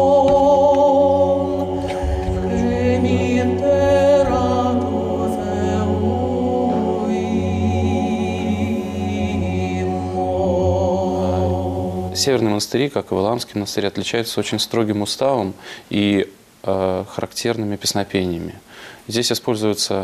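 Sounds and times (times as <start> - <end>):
male choir singing a cappella: 0.0 - 12.6.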